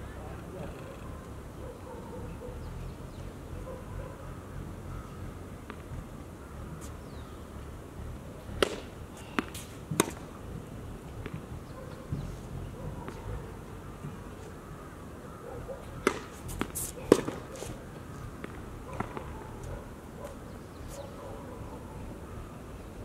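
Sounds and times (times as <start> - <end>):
tennis ball struck by rackets: 8.5 - 10.3, 11.2 - 11.5, 15.8 - 17.8, 18.4 - 19.4
ball bouncing on hard court: 16.0 - 17.7.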